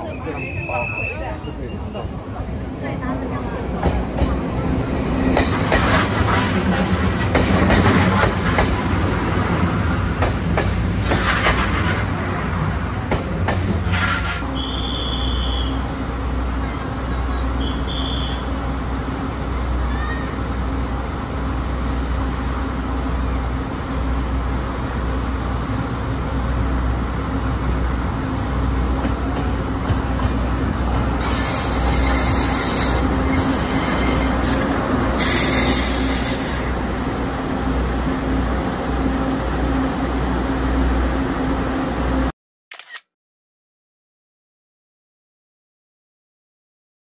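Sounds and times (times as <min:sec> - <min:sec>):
wheels rumbling on rails: 0:00.0 - 0:14.6, 0:15.6 - 0:42.3
high wheel squeal: 0:31.2 - 0:36.8.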